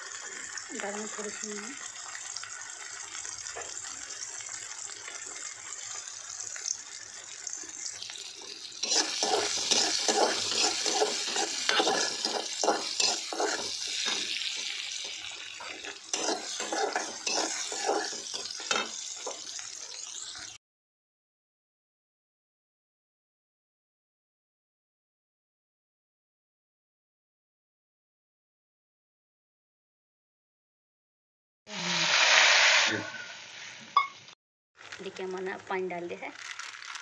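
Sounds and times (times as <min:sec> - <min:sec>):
food sizzling in hot oil: 0:00.0 - 0:20.6, 0:31.7 - 0:37.0
spatula scraping pan: 0:08.1 - 0:20.3.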